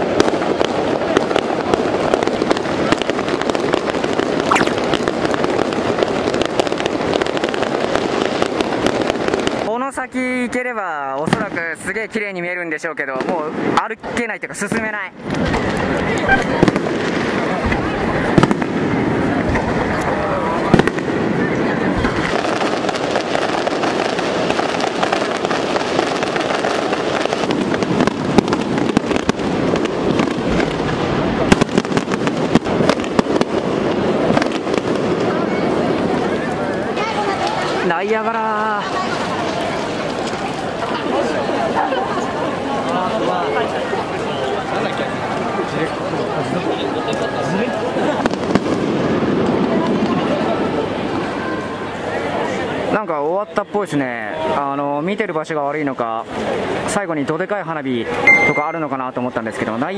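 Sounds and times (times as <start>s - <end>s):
fireworks crackling pops: 0.0s - 11.9s, 13.1s - 41.8s, 47.0s - 51.3s
firework whistle: 4.5s - 5.1s.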